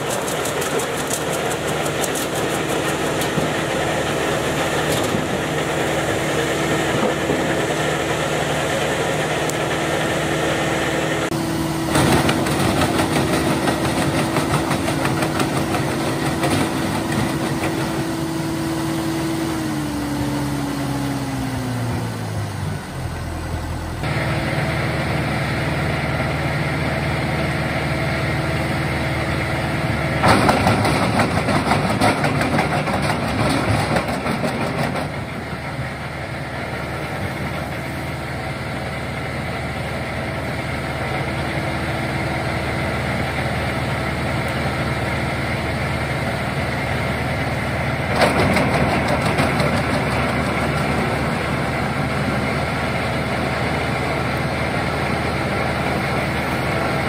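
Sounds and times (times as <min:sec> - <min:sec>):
branches crackling and splintering: 0:00.0 - 0:03.8
tractor and wood chipper running: 0:00.0 - 0:57.0.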